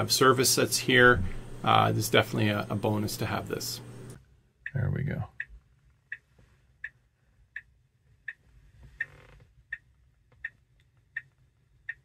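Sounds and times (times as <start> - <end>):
low steady hum: 0.0 - 8.9
electronic ticking: 9.7 - 12.0.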